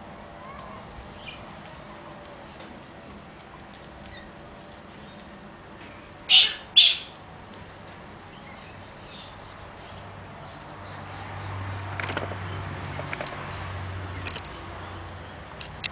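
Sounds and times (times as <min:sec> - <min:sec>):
bird screeching calls: 0:06.3 - 0:07.2.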